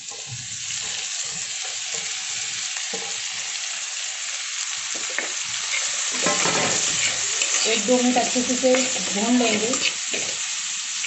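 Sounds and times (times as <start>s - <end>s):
onions sizzling in hot oil: 0.0s - 11.0s
spatula scraping pan: 5.0s - 10.4s.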